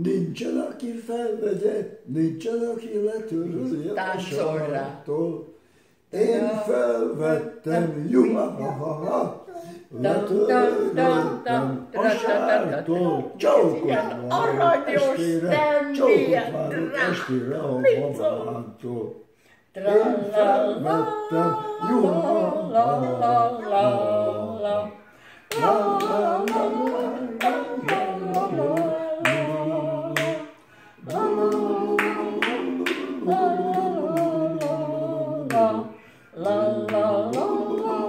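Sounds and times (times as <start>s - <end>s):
man and woman singing: 0.0s - 38.0s
hand-clapping: 25.5s - 30.5s, 31.1s - 34.9s, 36.4s - 38.0s.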